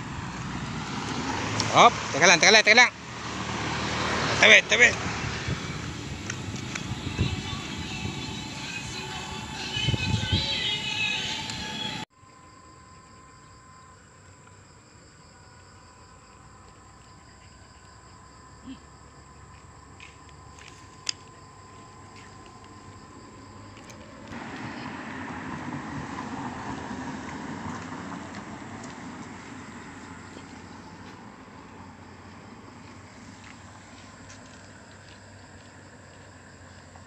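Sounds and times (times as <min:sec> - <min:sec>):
road traffic rushing: 0:00.0 - 0:12.1, 0:18.5 - 0:37.0
faint high whine: 0:06.1 - 0:17.5.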